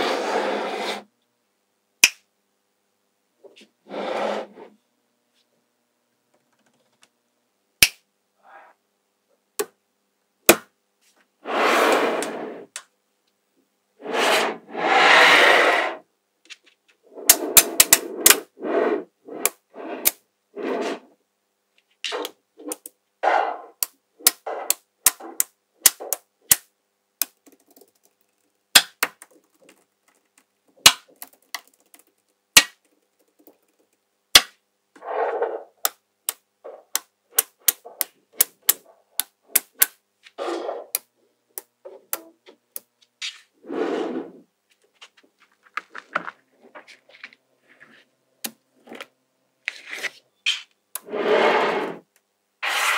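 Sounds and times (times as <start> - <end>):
magnetic balls clicking: 23.8 - 34.6, 35.8 - 40.0
magnetic balls rattling: 27.3 - 34.0.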